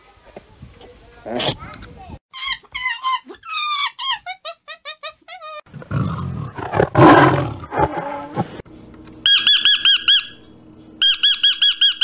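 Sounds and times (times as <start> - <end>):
tiger growling: 5.7 - 8.6.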